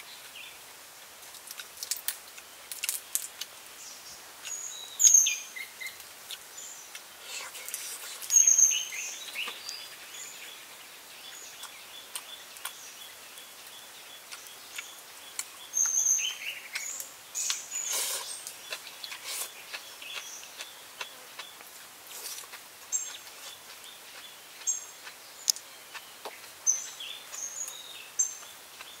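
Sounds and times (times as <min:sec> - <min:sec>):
quiet forest background: 0:00.0 - 0:29.0
clicks and rustles of eating: 0:01.2 - 0:03.6, 0:06.3 - 0:08.4, 0:11.6 - 0:12.8
small birds chirping: 0:01.4 - 0:29.0.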